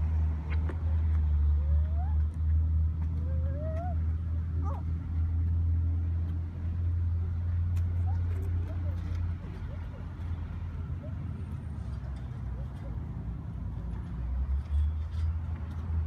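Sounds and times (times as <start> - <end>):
low outdoor rumble: 0.0 - 16.0
faint rising yelps: 1.6 - 2.4, 3.2 - 4.9.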